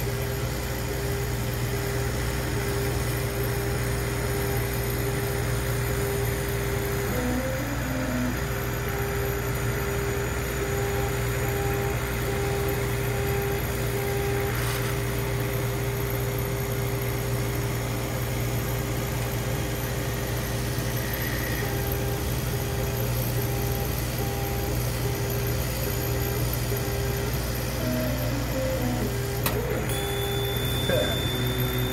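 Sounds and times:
laser cutter hum with whine: 0:00.0 - 0:31.9
pulsing high tone: 0:01.0 - 0:14.5, 0:21.0 - 0:31.9.

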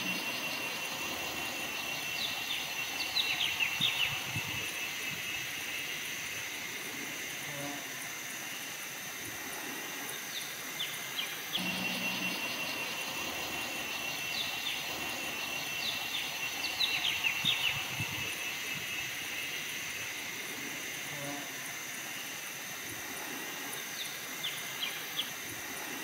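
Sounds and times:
small birds chirping: 0:00.0 - 0:05.9, 0:10.3 - 0:19.6
high insect drone: 0:00.0 - 0:26.0
long shrill insect trill: 0:00.0 - 0:26.0.

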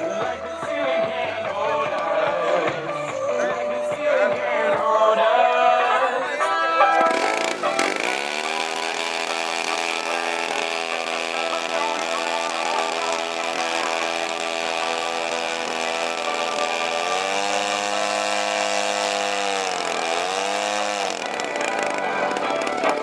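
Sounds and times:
model airplane engine running: 0:07.0 - 0:23.0.

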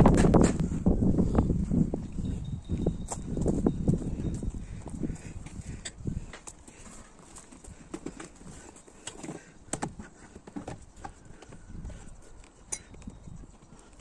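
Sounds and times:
handling knocks and clicks: 0:05.4 - 0:14.0.

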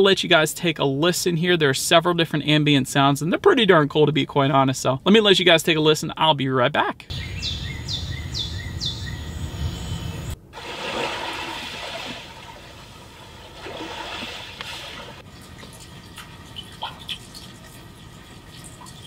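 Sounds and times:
birds chirping: 0:07.1 - 0:10.4
sea waves washing: 0:10.5 - 0:15.3.

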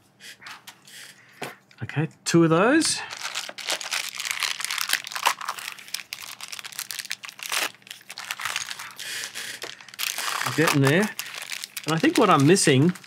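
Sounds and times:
plastic bag crinkling: 0:03.0 - 0:13.0.

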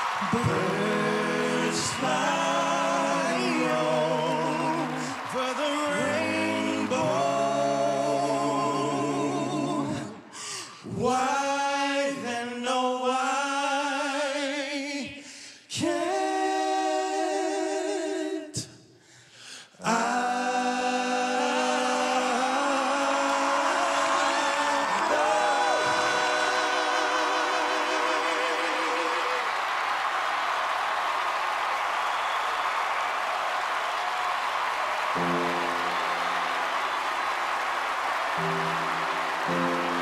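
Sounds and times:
male vocal quartet singing harmony: 0:00.0 - 0:18.7, 0:19.7 - 0:29.6.

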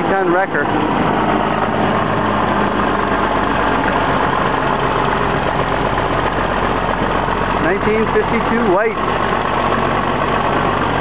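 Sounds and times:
tow truck engine running: 0:00.0 - 0:11.0.

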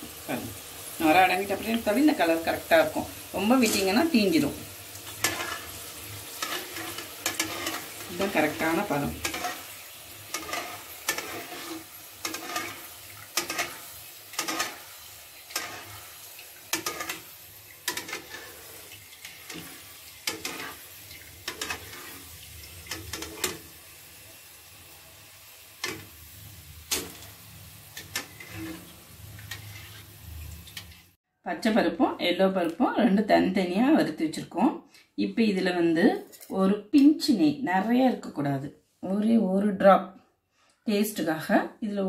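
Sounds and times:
beans frying in oil: 0:00.0 - 0:31.2.

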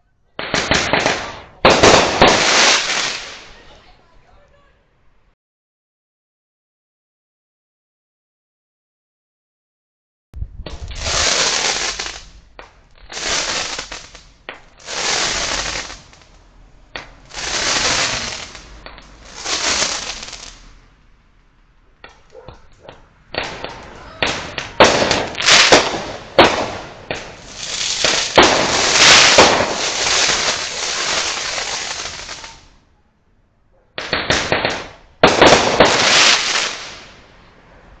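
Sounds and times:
firework bursts: 0:00.4 - 0:03.7, 0:10.6 - 0:20.8, 0:23.0 - 0:32.8, 0:34.0 - 0:37.5
firework crackling and popping: 0:00.4 - 0:03.8, 0:10.6 - 0:20.8, 0:22.9 - 0:32.7, 0:34.0 - 0:37.3.

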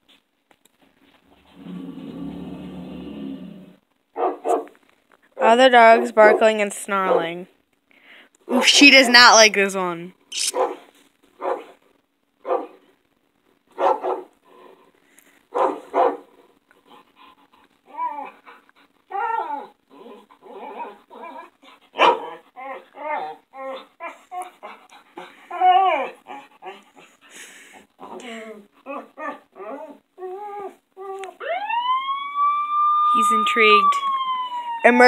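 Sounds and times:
dogs barking and snarling: 0:01.4 - 0:04.8, 0:10.4 - 0:11.8, 0:12.4 - 0:12.9, 0:13.7 - 0:30.8
dogs yelping: 0:19.1 - 0:24.8.

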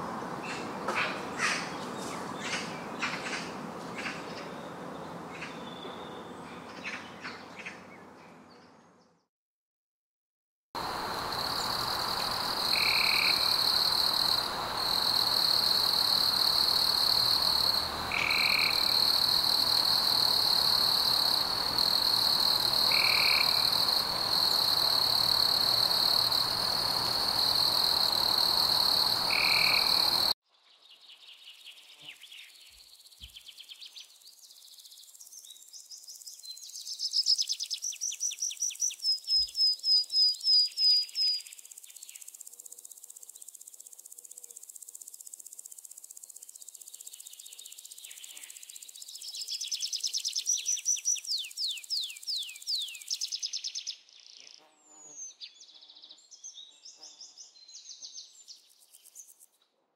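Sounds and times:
high-pitched insect drone: 0:10.8 - 0:30.4.

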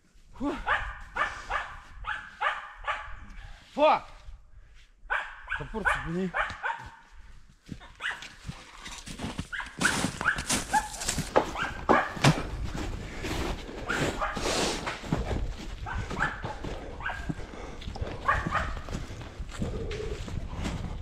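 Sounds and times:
footsteps on snow and leaves: 0:06.4 - 0:21.0.

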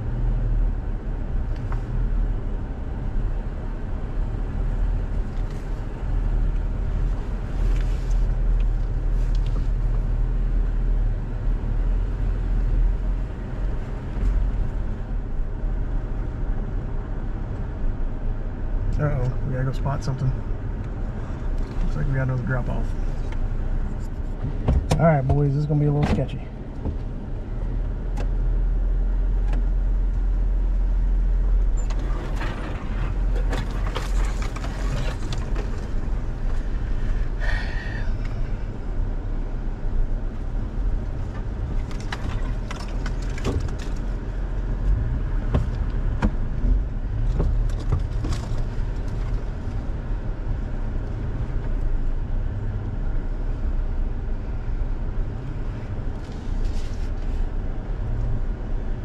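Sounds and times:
clicks and knocks from truck: 0:31.8 - 0:36.0, 0:41.8 - 0:44.1.

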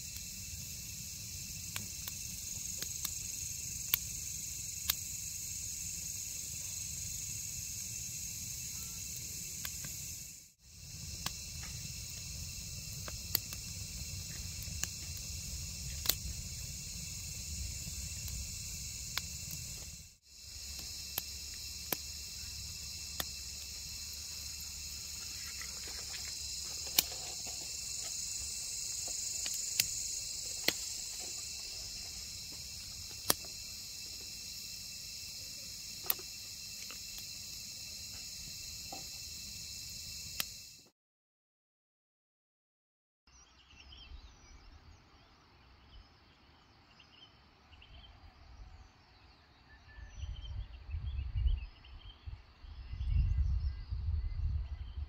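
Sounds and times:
sharp fire pops: 0:00.0 - 0:05.2, 0:10.9 - 0:23.8, 0:25.0 - 0:34.3, 0:35.9 - 0:37.3
campfire crackling: 0:00.0 - 0:40.8
crickets chirping: 0:00.0 - 0:40.9, 0:43.3 - 0:55.0.

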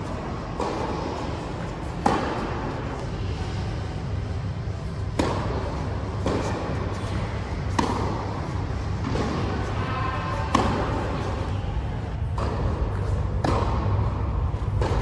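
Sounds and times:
low hum of hall: 0:00.0 - 0:15.0
racket striking tennis ball: 0:00.4 - 0:03.0, 0:05.1 - 0:11.4, 0:12.2 - 0:15.0.

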